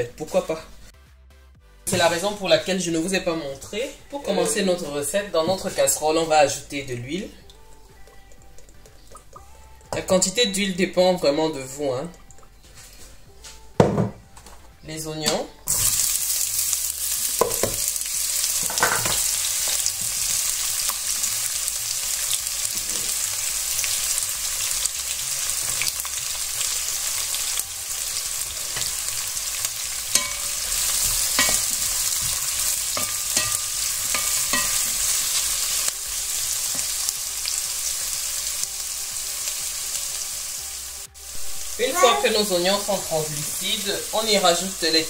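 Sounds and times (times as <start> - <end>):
onions sizzling in hot oil: 1.9 - 7.4, 15.3 - 45.0.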